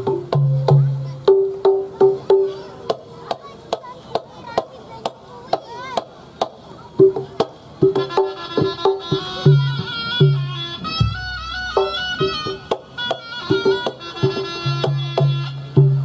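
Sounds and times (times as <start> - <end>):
repeated pitched notes: 7.8 - 16.0.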